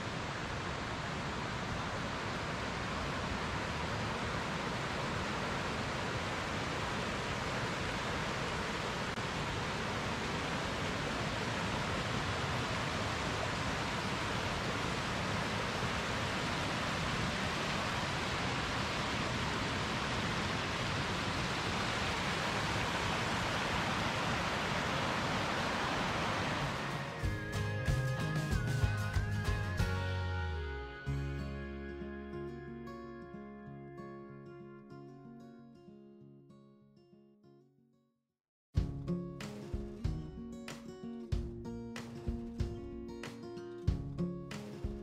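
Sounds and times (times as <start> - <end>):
creek rushing over rocks: 0.0 - 27.3.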